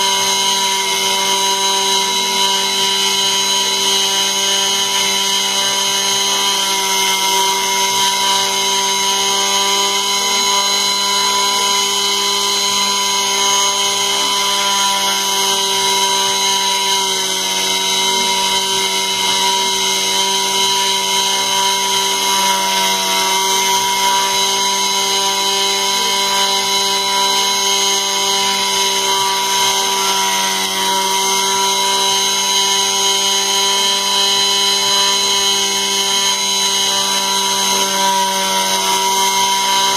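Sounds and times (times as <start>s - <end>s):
router spindle high whine: 0.0s - 39.9s.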